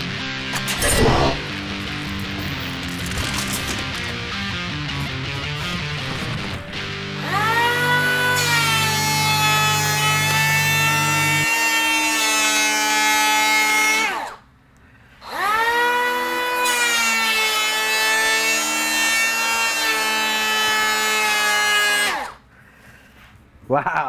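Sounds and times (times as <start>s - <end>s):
power planer whining: 5.0s - 14.4s, 15.2s - 22.4s.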